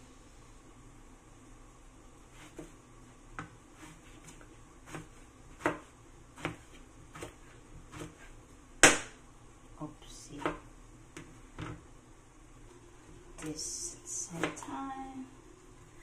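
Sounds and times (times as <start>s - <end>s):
knife slicing eggplant: 3.4s - 9.0s.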